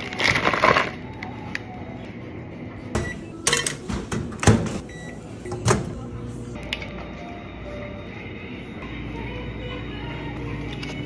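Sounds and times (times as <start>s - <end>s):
plastic bag ripping: 0.0s - 1.0s.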